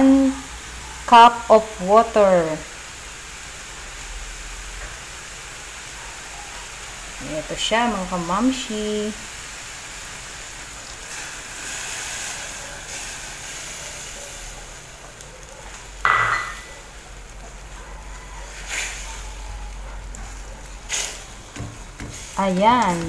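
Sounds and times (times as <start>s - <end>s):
food sizzling and simmering: 0.0s - 23.0s
water poured into hot pan: 8.8s - 17.7s
sharp metallic clink: 16.1s - 16.7s
spatula scraping pan: 20.2s - 23.0s.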